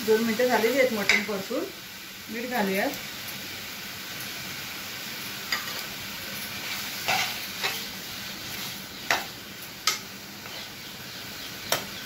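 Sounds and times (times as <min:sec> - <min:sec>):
meat sizzling in oil: 0:00.0 - 0:12.0
metal spoon scraping pan: 0:06.5 - 0:07.9.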